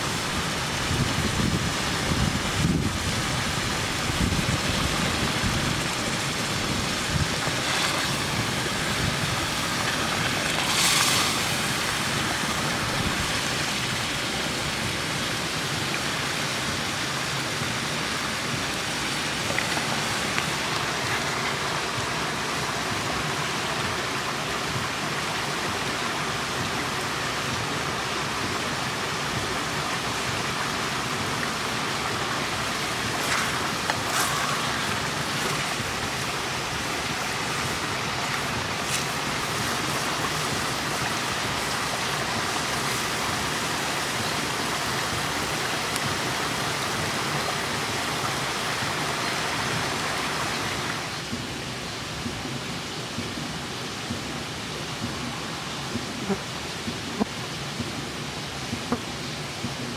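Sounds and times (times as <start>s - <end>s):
wood fire crackling: 31.2s - 44.0s.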